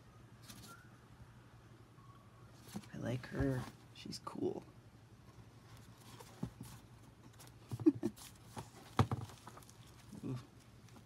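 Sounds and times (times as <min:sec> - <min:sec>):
book knocking on countertop: 0:09.0 - 0:09.3.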